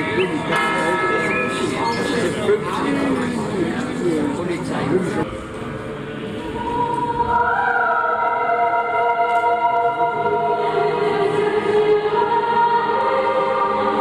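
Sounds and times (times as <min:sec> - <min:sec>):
mixed choir singing: 0:05.2 - 0:14.0.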